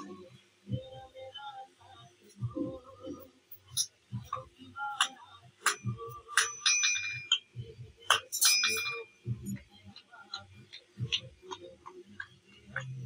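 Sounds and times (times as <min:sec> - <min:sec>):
hammer striking metal anvil: 0:05.6 - 0:07.5, 0:08.1 - 0:09.6.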